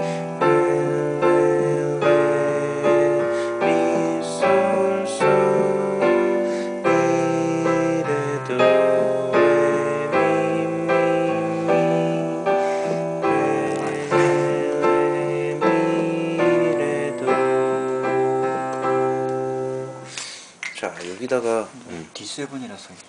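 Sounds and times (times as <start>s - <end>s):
piano playing chords and melody: 0.0s - 20.2s.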